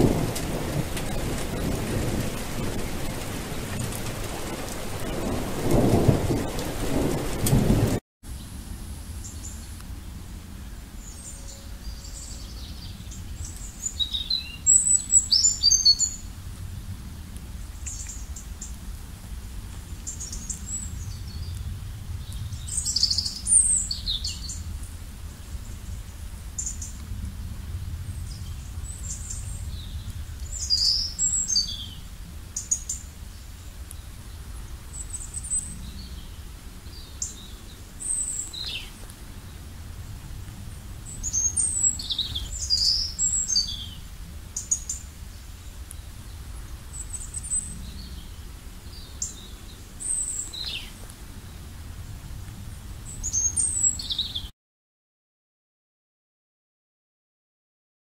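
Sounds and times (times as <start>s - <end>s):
songbirds chirping: 8.4s - 16.4s, 27.7s - 54.5s
low steady rumble: 16.1s - 50.2s.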